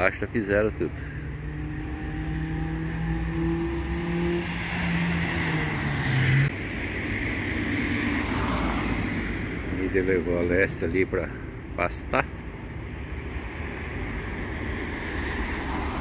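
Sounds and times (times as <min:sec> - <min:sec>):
street noise: 0:00.0 - 0:16.0
vehicle engine passing: 0:00.4 - 0:06.5.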